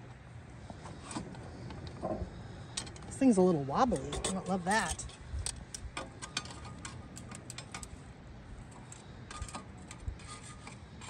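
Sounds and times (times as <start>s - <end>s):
charcoal briquettes clicking: 4.9s - 7.9s.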